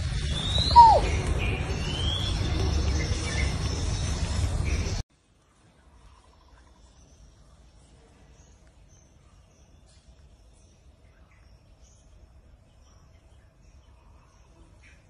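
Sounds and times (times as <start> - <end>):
short high chirps: 0.4 - 1.1.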